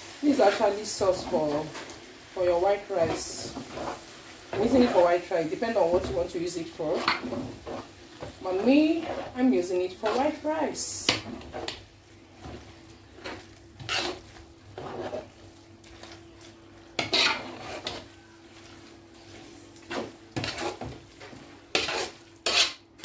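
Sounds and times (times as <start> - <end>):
metal spoon scraping a metal pot: 13.2 - 14.2, 17.0 - 18.1, 19.9 - 20.9, 21.7 - 22.8.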